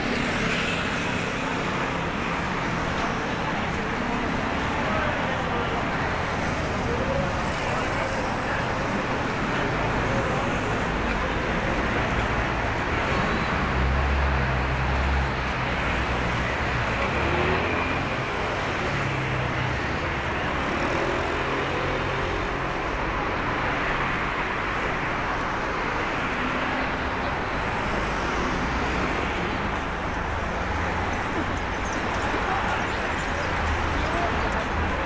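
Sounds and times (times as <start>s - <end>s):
road traffic: 0.0s - 35.0s.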